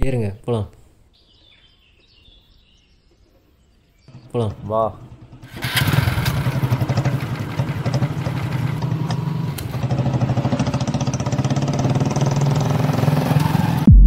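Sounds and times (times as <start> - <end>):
motorcycle engine running: 4.1 - 14.0.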